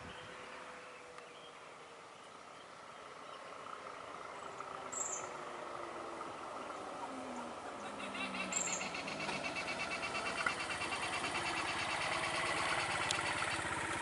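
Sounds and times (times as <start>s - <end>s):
high bird chirp: 8.0s - 13.7s
crickets chirping: 8.3s - 13.8s.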